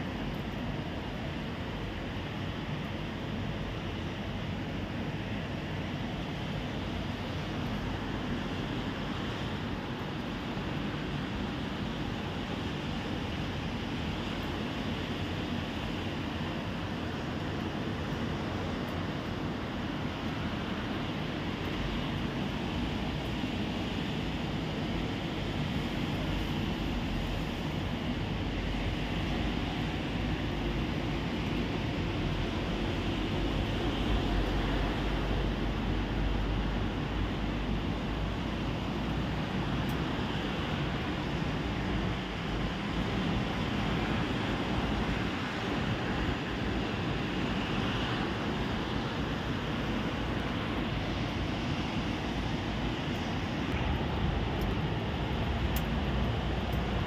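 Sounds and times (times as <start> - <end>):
heavy rain hissing: 42.8 - 57.0.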